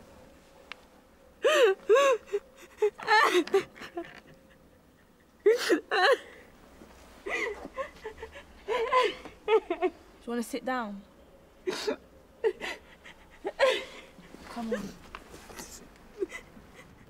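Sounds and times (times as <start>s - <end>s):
woman sobbing: 1.4s - 6.5s, 7.2s - 9.9s, 11.6s - 17.0s.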